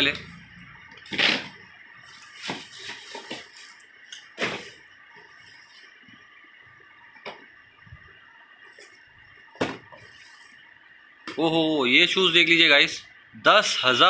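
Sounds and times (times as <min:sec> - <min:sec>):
cardboard boxes scraping and knocking: 0:02.2 - 0:03.8.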